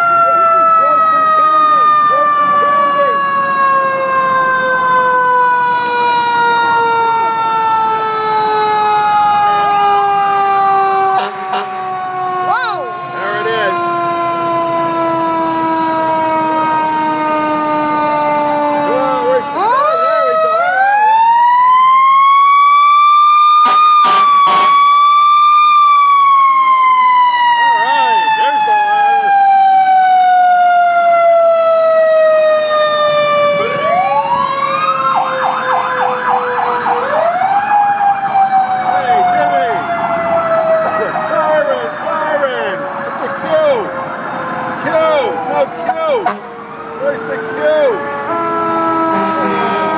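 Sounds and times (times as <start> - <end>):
fire engine siren wailing: 0.0 - 49.9.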